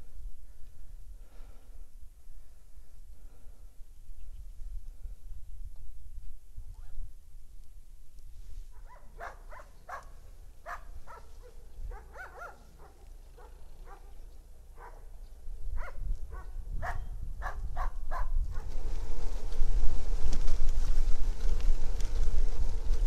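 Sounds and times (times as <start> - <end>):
dog barking: 8.8 - 15.2, 15.8 - 18.7.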